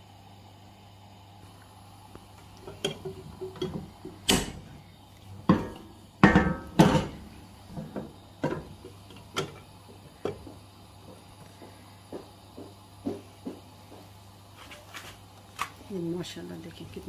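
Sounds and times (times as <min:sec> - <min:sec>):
cookware knocking on hob: 0:05.5 - 0:07.2.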